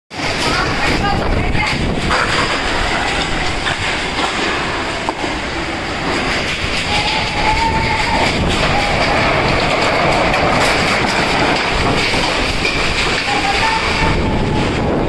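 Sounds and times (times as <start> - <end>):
heavy rain: 0.1 - 15.0
strong wind blowing: 0.1 - 15.0
wind whistling: 0.1 - 15.0.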